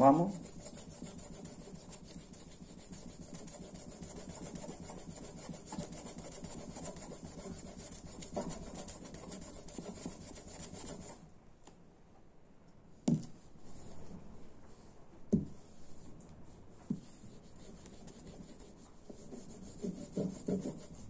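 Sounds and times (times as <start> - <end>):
plastic rubbing on a strop: 0.0 - 11.2.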